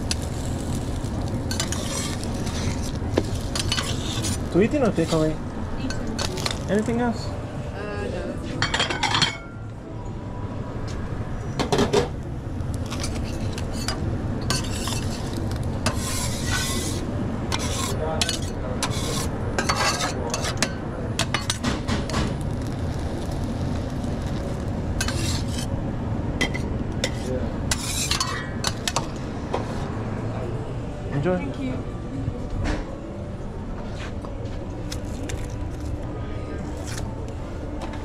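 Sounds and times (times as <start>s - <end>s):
food sizzling: 0.0s - 5.3s
utensils clinking and scraping pans: 12.9s - 22.3s.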